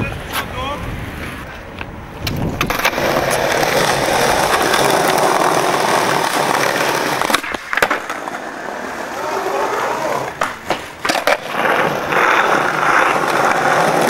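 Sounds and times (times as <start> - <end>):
skateboard wheels rolling on pavement: 0.0 - 14.0
skateboard kickflip pop: 7.2 - 8.2.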